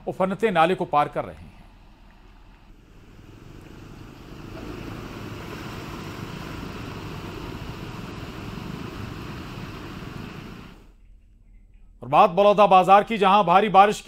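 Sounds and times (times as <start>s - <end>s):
floodwater rushing through drain: 2.7s - 10.9s.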